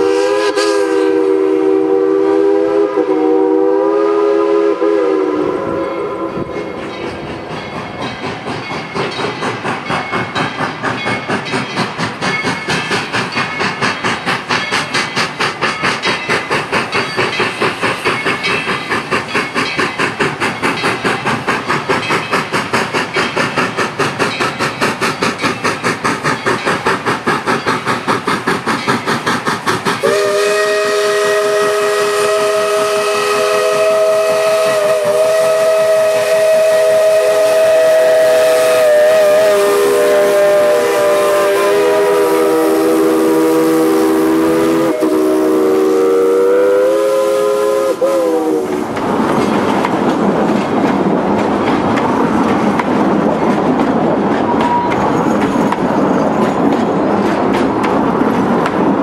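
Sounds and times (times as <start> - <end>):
steam locomotive whistle: 0.0 - 7.3, 29.9 - 49.0, 54.5 - 55.2
steam locomotive exhaust chuffing: 0.0 - 59.0.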